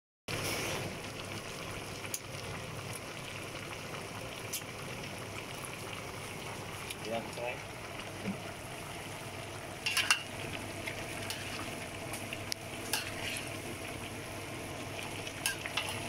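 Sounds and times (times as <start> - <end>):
food sizzling: 0.3 - 16.0
metal spatula scraping a pan: 9.8 - 10.3, 11.2 - 11.7, 12.8 - 13.6, 15.4 - 16.0.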